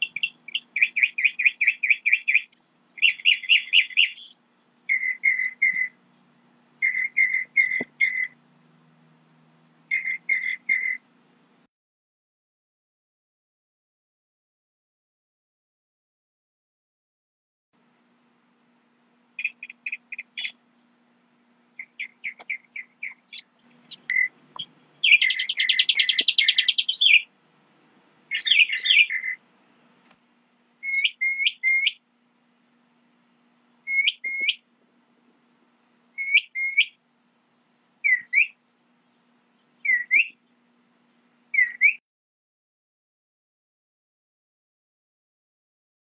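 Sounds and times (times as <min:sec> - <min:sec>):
songbird chirping and trilling: 0:00.0 - 0:08.4, 0:09.8 - 0:11.1, 0:19.3 - 0:21.0, 0:21.7 - 0:27.3, 0:28.3 - 0:29.4, 0:30.8 - 0:32.1, 0:33.7 - 0:34.7, 0:36.1 - 0:37.0, 0:38.0 - 0:42.0.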